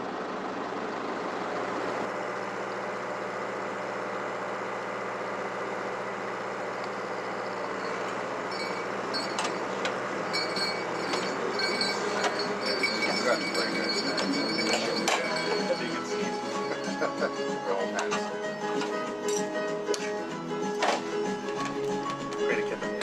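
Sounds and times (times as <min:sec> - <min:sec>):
engine idling: 0:00.0 - 0:23.0.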